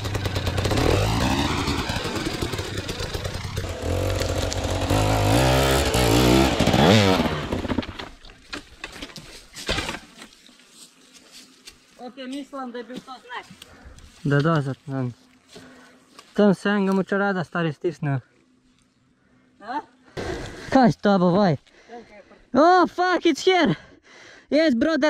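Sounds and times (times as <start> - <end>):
dirt bike engine revving: 0.0 - 7.9.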